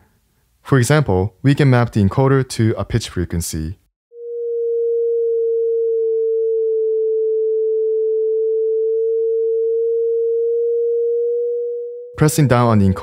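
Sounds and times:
pure sine tone: 4.1s - 13.0s.

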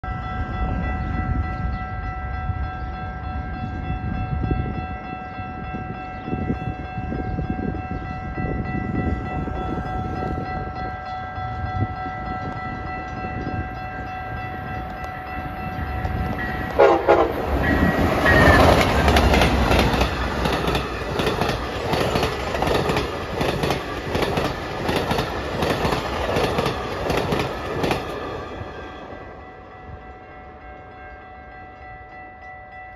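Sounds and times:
train wheels clickety-clack: 11.4s - 29.2s
train horn chord: 16.4s - 18.8s.

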